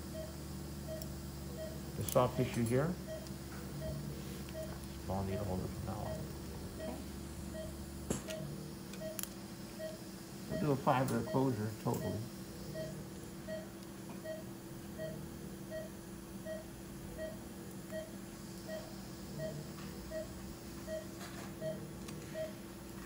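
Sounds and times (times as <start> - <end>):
steady electrical hum: 0.0 - 23.0
pulse oximeter beeping: 0.1 - 22.6.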